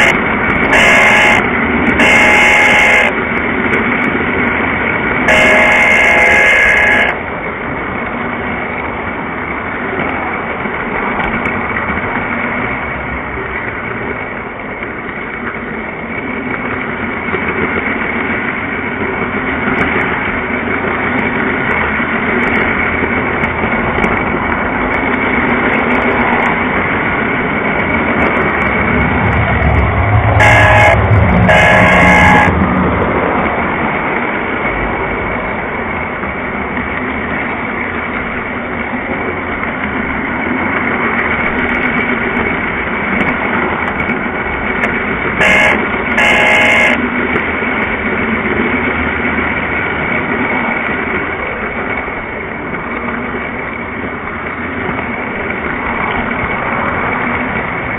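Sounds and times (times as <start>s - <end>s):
model train horn blasts: 0.0s - 3.4s, 5.2s - 7.3s, 30.1s - 32.6s, 45.4s - 47.2s
model train running on track: 0.0s - 57.9s.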